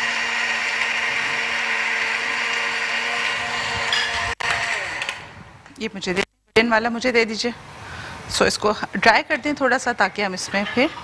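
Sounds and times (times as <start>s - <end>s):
blender crushing ice: 0.0s - 5.3s.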